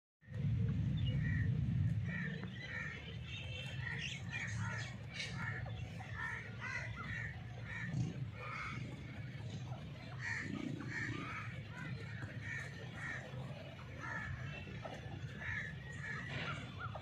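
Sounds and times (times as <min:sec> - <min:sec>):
steady low rumble: 0:00.2 - 0:14.4.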